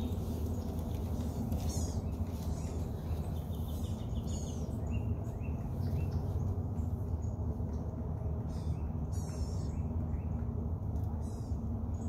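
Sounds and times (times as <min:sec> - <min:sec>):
birds chirping and calling: 0:00.0 - 0:07.3, 0:08.4 - 0:10.4.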